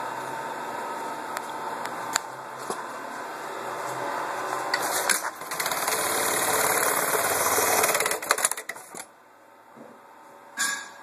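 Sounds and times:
sewing machine stitching fast: 4.8 - 9.0
machine clicks: 4.8 - 9.1.

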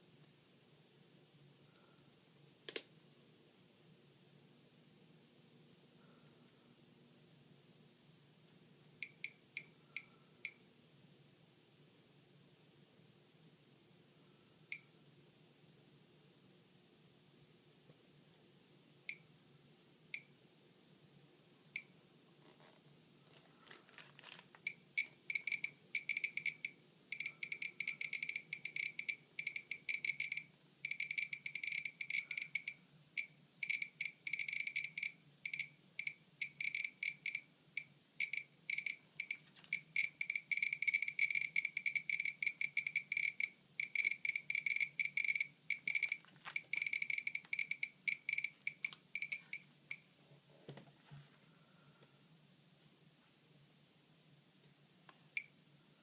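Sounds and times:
geiger counter beeping: 9.0 - 10.6, 24.6 - 50.1.

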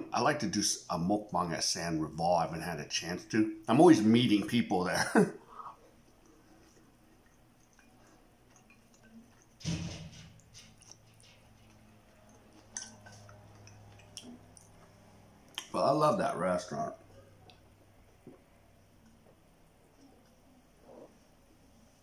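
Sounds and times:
wet mouth clicks and smacks: 6.1 - 9.6, 10.4 - 15.7.

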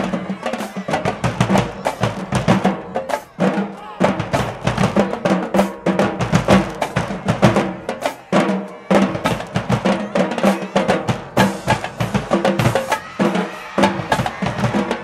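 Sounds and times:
snare and bass drums cadence: 0.0 - 15.0.

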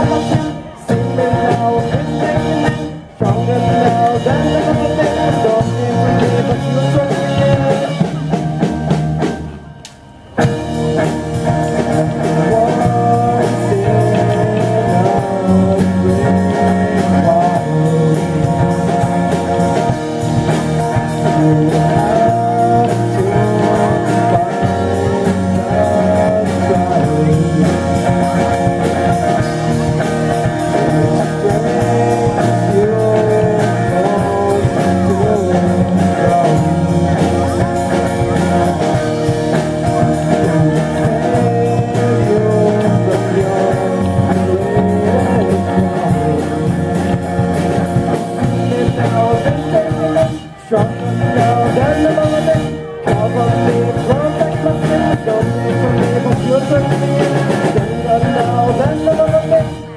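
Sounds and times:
person singing lead vocal: 0.0 - 9.3, 9.9 - 59.9
drum kit: 0.0 - 59.9
electric bass: 0.0 - 59.9
electric guitar: 0.0 - 59.9.

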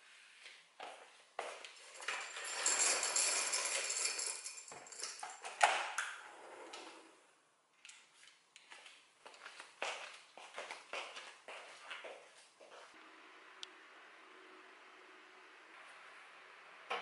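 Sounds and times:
roller blind chain rattling: 1.8 - 5.6.

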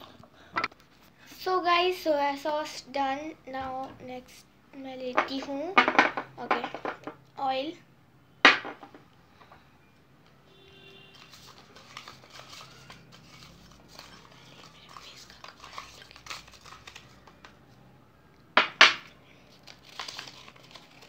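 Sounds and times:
paper crinkling: 11.1 - 17.7, 19.4 - 21.0
paper chits rattling in glass bowl: 11.2 - 17.5, 19.6 - 21.0.

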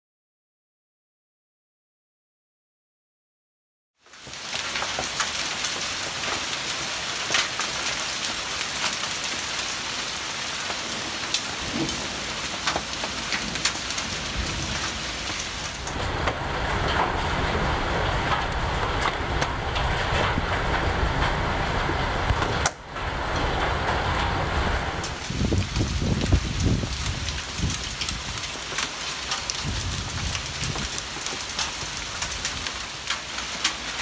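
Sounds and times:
hailstones ticking on surfaces: 4.0 - 24.2, 24.9 - 34.0
hail and heavy rain pelting: 4.0 - 34.0
low rumble: 13.3 - 28.4.

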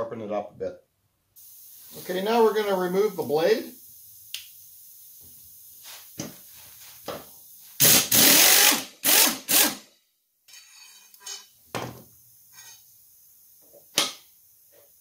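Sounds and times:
power tool bursts: 7.8 - 9.9.

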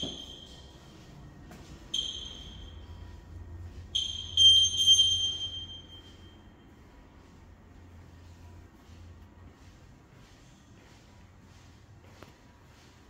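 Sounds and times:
high bell-like pings: 0.0 - 0.7, 4.0 - 6.5.

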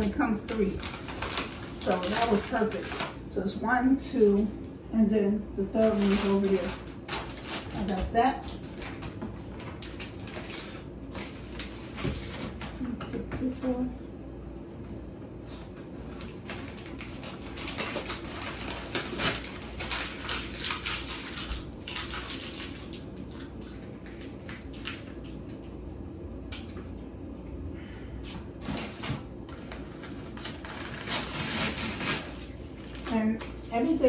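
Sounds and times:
paper envelope rustling and tearing: 0.4 - 3.2, 5.8 - 12.8, 16.0 - 23.2, 28.6 - 33.6.

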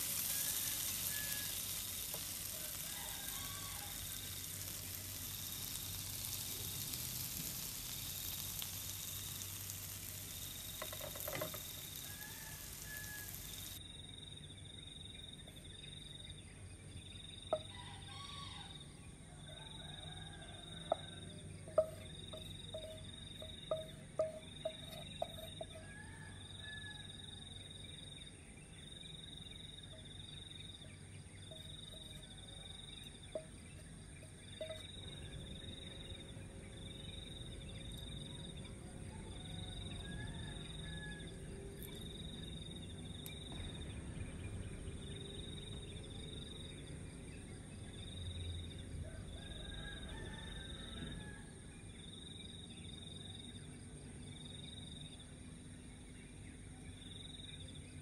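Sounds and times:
high-pitched insect drone: 0.0 - 13.8
insects chirping in pulses: 0.0 - 16.4, 19.7 - 25.8, 26.4 - 48.8.

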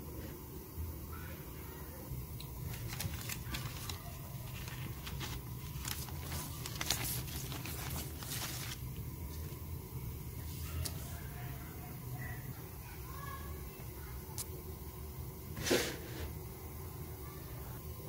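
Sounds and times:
steady low hum: 0.0 - 18.0
plastic packaging rustling and crinkling: 2.5 - 9.6.

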